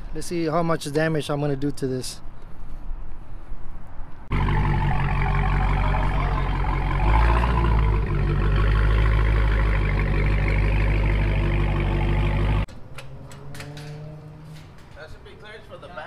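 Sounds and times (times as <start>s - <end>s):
car engine idling: 4.3s - 12.7s.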